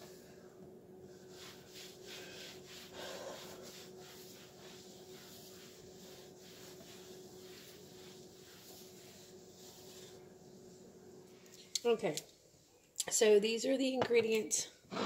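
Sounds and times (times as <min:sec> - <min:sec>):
wiping glass stovetop: 0:01.0 - 0:11.1.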